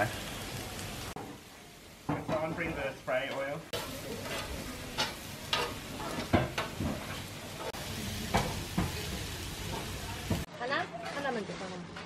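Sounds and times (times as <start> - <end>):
food sizzling on hotplate: 0.0 - 10.5.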